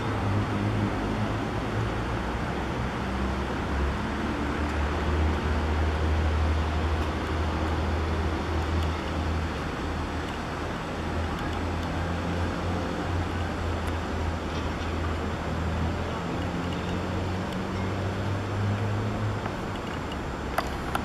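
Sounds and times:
road traffic noise: 0.0 - 21.0.

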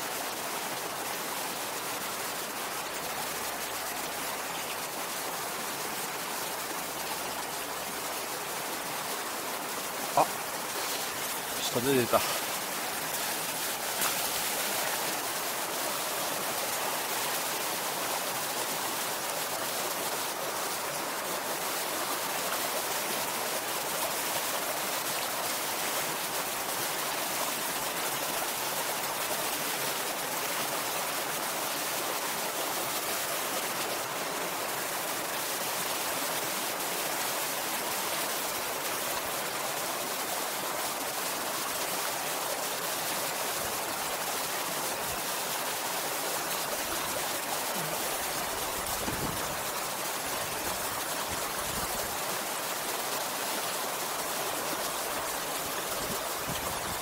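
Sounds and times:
stream rushing over rocks: 0.0 - 57.0.

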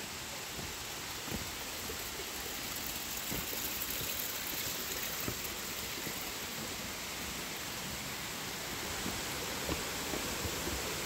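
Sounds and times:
rushing flowing water: 0.0 - 11.0.

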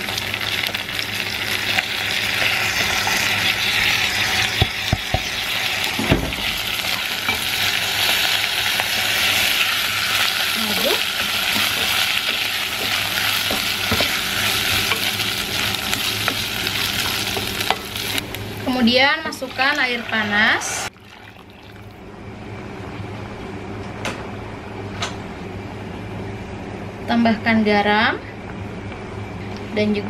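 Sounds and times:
rice sizzling in a pot: 0.0 - 22.0.

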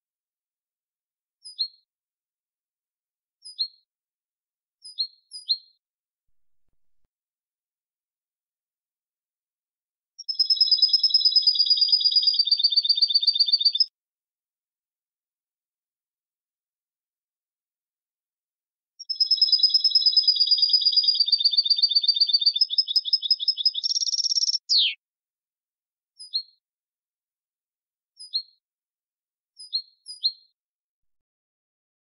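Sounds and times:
bird singing fast trill: 10.2 - 13.9, 19.0 - 25.0
short bird call notes: 24.5 - 25.0.

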